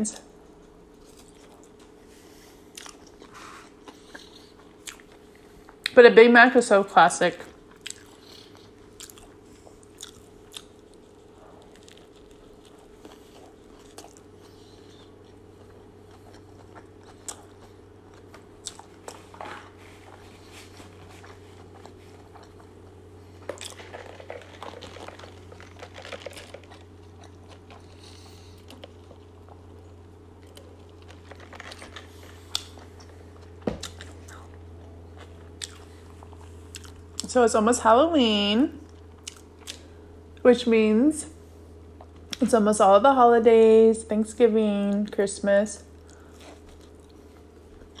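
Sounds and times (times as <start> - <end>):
steady low hum: 0.0 - 48.0
chewing clicks and crunches: 1.0 - 2.0, 2.7 - 6.0, 7.6 - 20.2, 20.9 - 37.4, 38.8 - 40.4, 45.9 - 48.0.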